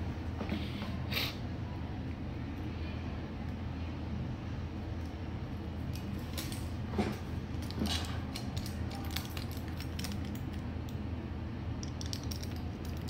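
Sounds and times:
steady low hum: 0:00.0 - 0:13.0
aluminium tape crinkling: 0:05.8 - 0:06.8, 0:07.5 - 0:10.7, 0:11.8 - 0:13.0.

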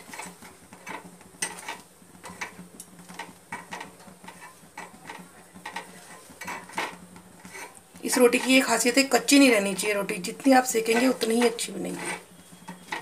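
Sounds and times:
metal tongs clicking and scraping: 0:10.9 - 0:13.0.

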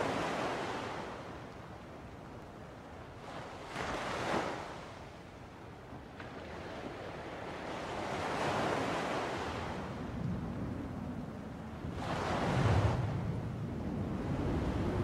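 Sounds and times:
waves washing in: 0:06.2 - 0:10.1, 0:11.8 - 0:15.0.

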